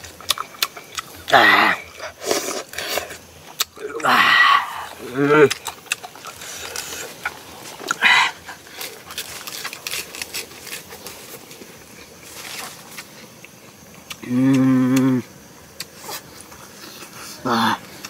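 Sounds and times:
chewing and lip-smacking: 0.1 - 1.3, 5.4 - 14.2
man humming: 14.2 - 15.3.

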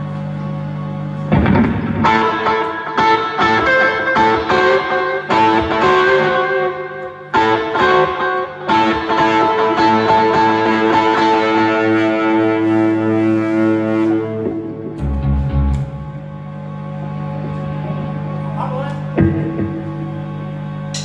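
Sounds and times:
distorted electric guitar chords: 0.0 - 21.0
live rock band playing: 1.3 - 16.2.

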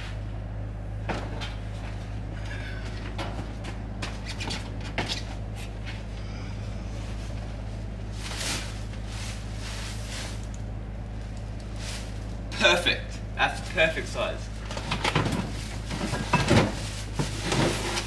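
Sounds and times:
steady low hum: 0.0 - 18.0
scraping rustle: 6.9 - 12.5, 14.7 - 18.0
plastic tubs knocking and rustling: 14.7 - 18.0.

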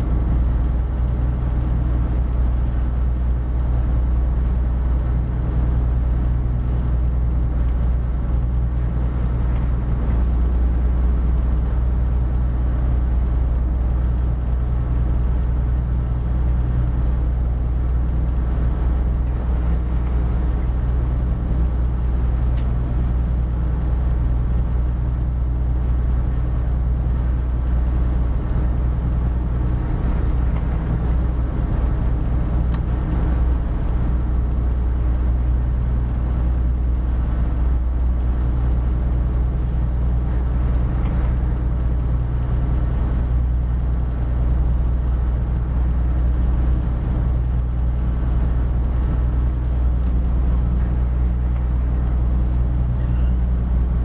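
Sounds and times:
ship diesel engine drone: 0.0 - 54.0
faint short high beep: 8.8 - 10.1, 53.0 - 53.4.

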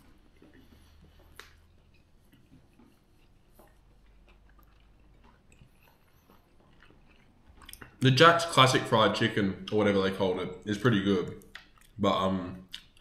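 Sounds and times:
faint chewing: 0.0 - 9.9, 10.6 - 13.0
soft mouth clicks: 0.1 - 8.0, 12.6 - 13.0.

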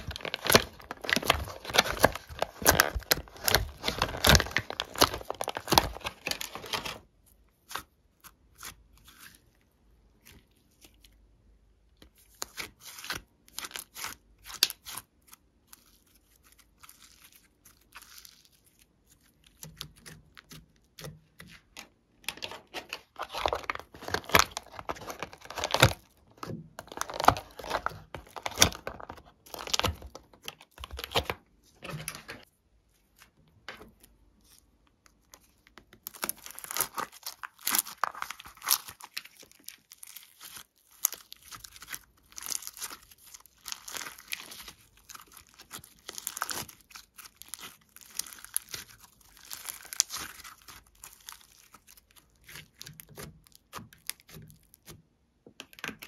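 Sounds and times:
plastic tray crinkling: 0.0 - 7.1, 19.6 - 32.5, 35.3 - 55.0.

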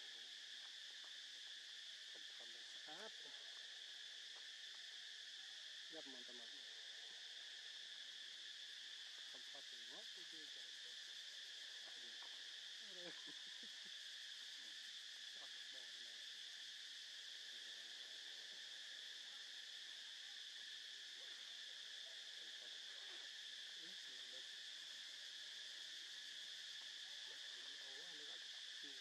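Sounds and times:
insect chorus drone: 0.0 - 29.0.

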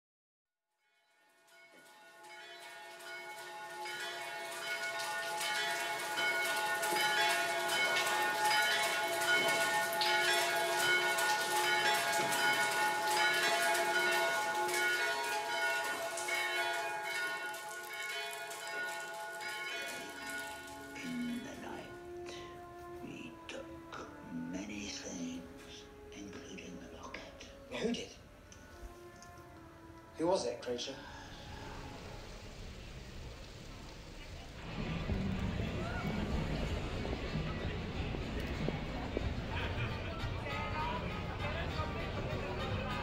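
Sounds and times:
church bells ringing: 0.9 - 24.0.

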